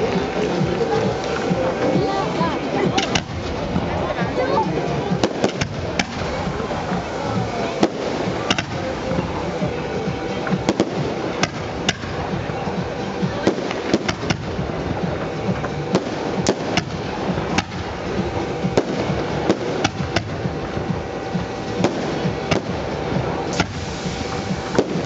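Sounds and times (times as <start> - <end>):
firework shells bursting: 0.0 - 25.0
crackle of firework stars: 4.8 - 25.0.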